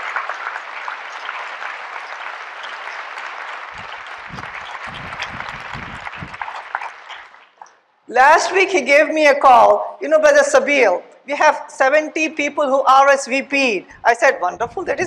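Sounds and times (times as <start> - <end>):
large audience applauding: 0.0 - 7.7.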